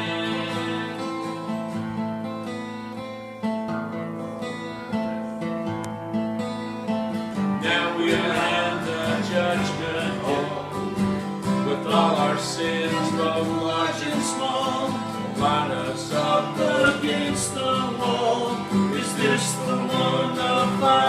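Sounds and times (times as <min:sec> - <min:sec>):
acoustic guitars strumming: 0:00.0 - 0:21.0.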